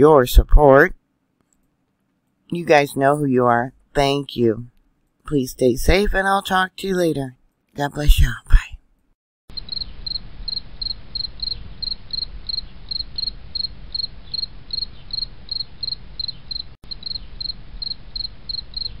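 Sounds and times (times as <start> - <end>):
insect chirping: 9.5 - 19.0.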